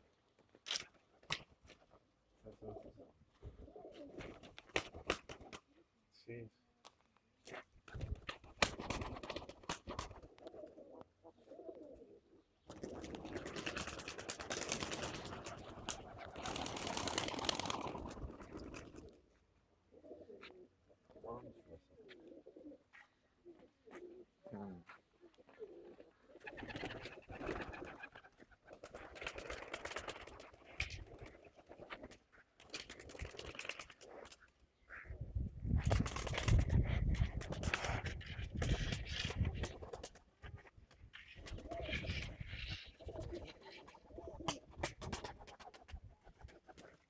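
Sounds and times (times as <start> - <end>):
pigeon wing claps: 0.6 - 1.8, 4.2 - 5.7, 7.5 - 10.4, 12.7 - 19.1, 26.5 - 34.4, 35.8 - 40.3, 44.4 - 47.0
pigeons cooing: 2.5 - 5.0, 8.8 - 19.3, 19.9 - 35.4, 36.0 - 47.0.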